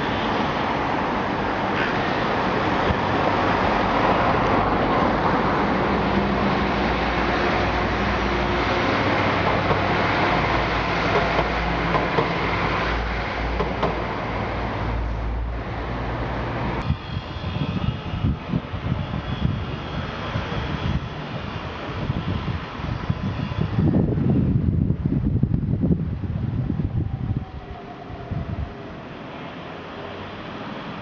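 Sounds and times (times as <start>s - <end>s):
diesel train engine drone: 0.0s - 31.0s
wind buffeting microphone: 16.6s - 29.1s.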